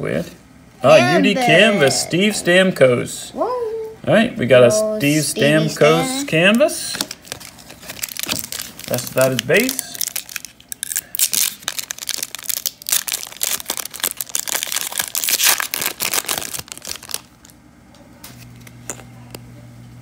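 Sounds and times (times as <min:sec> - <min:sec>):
low steady hum: 0:00.0 - 0:20.0
foil wrapper tearing and crinkling: 0:07.0 - 0:17.6.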